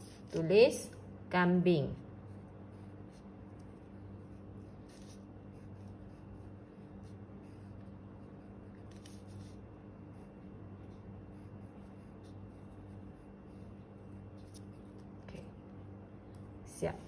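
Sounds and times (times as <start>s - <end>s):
steady low hum: 0.0s - 17.0s
pencil writing on paper: 2.2s - 15.1s.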